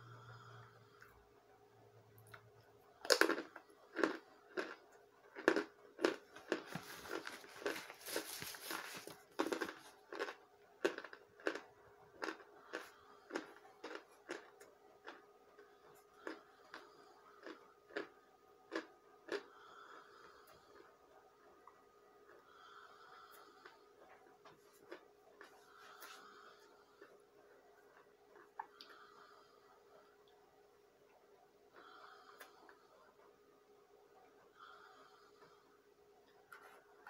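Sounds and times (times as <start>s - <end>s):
person chewing with sharp bites: 2.2s - 20.9s, 23.4s - 29.4s.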